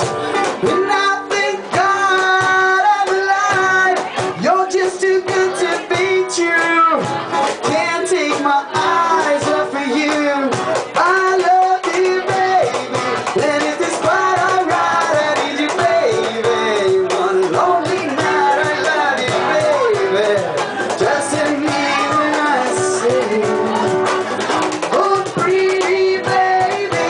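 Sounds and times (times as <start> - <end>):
strummed acoustic guitar: 0.0 - 27.0
woman singing: 21.0 - 23.9.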